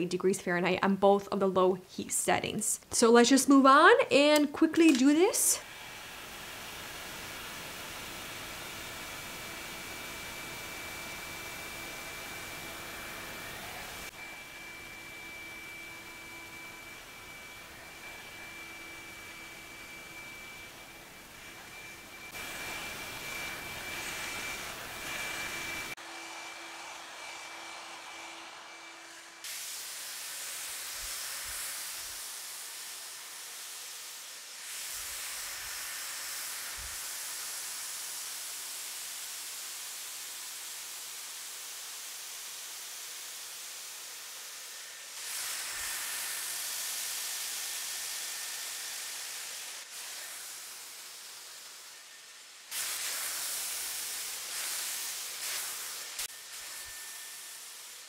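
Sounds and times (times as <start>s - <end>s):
hair dryer blowing air: 4.2s - 58.0s
thin whine: 13.4s - 26.0s.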